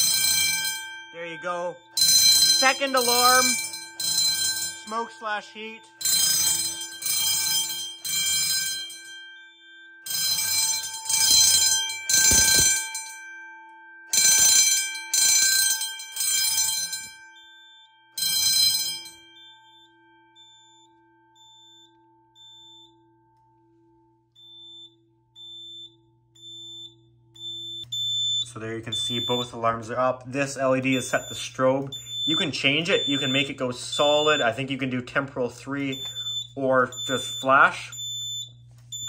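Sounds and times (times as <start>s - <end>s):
fire alarm bell ringing: 0.0s - 39.0s
faint high beep: 31.0s - 34.6s, 35.7s - 39.0s.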